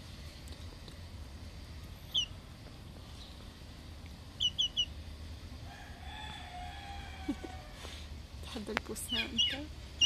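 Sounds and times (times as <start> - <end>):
rooster crowing: 5.6 - 8.0.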